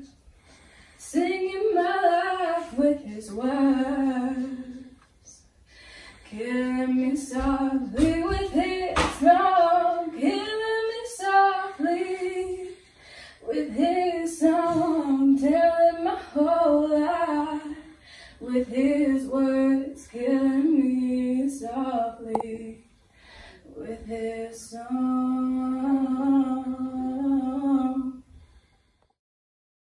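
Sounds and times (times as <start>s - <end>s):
girl singing unaccompanied: 1.0s - 5.0s, 6.3s - 12.8s, 13.4s - 22.9s.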